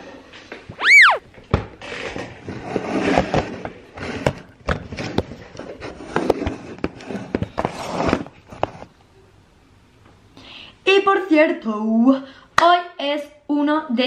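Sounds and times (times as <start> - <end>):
rustling and scraping: 1.8 - 8.9.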